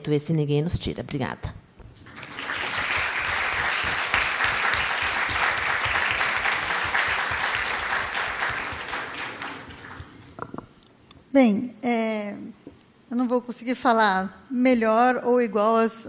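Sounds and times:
audience applause: 0:02.0 - 0:10.6.

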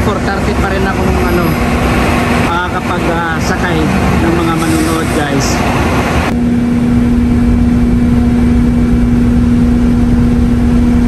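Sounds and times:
bus engine idling: 0:00.0 - 0:06.3.

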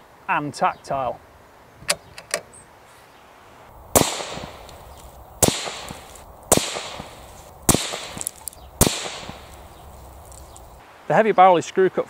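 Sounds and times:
rifle shots with echo: 0:03.9 - 0:10.5.

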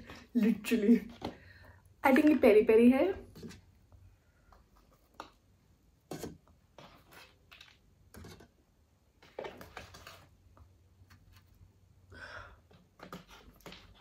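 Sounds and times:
paper rustling: 0:09.2 - 0:11.7.

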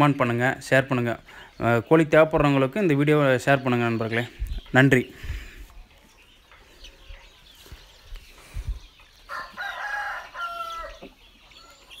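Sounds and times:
chickens calling: 0:00.0 - 0:12.0
cockerel crowing: 0:09.3 - 0:11.1.

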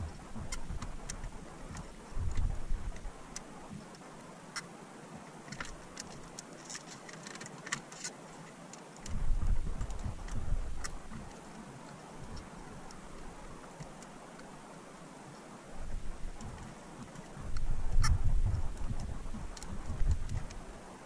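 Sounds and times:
low rumble: 0:09.1 - 0:11.2, 0:17.4 - 0:20.6.

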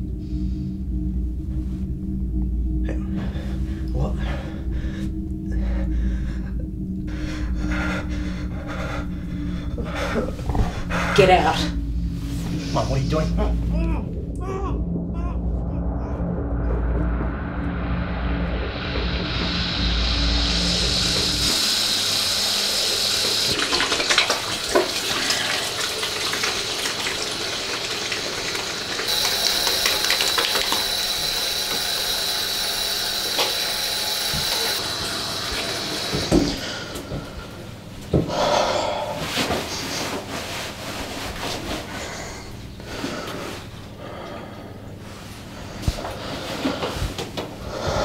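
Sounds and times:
water rushing into a basin: 0:18.8 - 0:37.3
water splashing: 0:20.5 - 0:36.9.

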